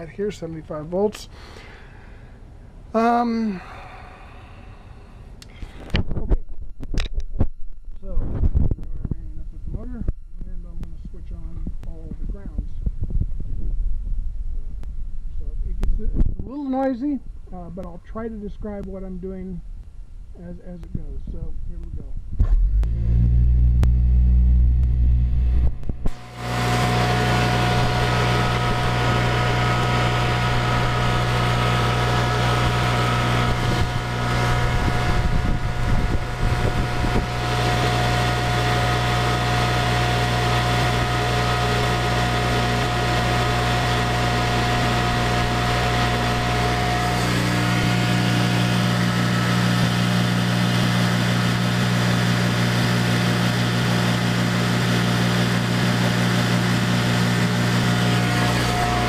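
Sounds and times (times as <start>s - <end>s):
electric motor hum: 3.0s - 15.2s, 22.3s - 59.0s
electric motor high whine: 22.4s - 59.0s.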